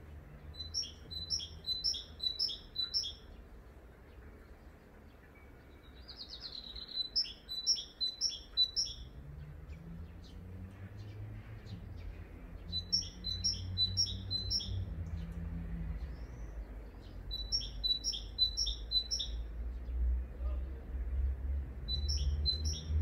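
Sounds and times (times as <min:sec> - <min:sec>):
songbird singing: 0:00.0 - 0:23.0.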